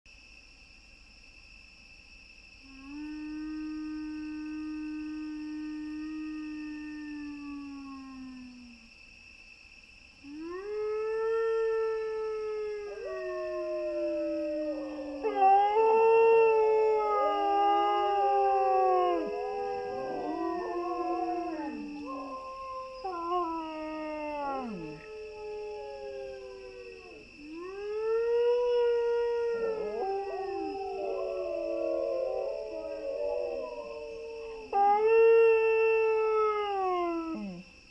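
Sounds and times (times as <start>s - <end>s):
dog howling: 10.5s - 37.6s.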